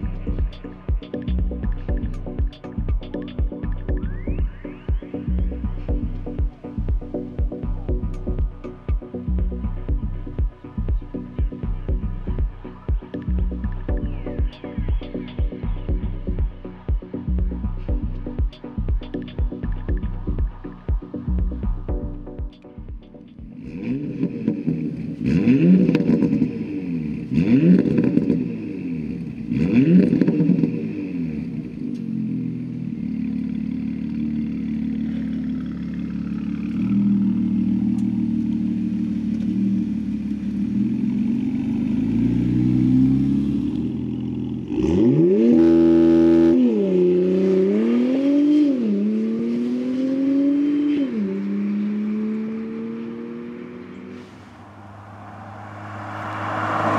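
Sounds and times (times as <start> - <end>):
engine running steadily: 0.0 - 44.9
engine accelerating through upshifts: 23.2 - 56.9
car engine throttle blips: 53.7 - 56.9.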